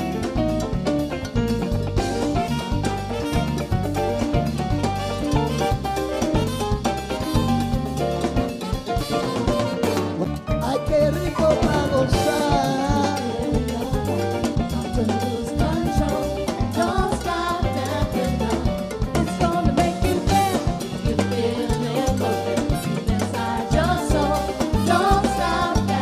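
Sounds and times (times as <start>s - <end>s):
bass line: 0.0s - 26.0s
drum kit beat: 0.0s - 26.0s
women singing: 11.8s - 26.0s.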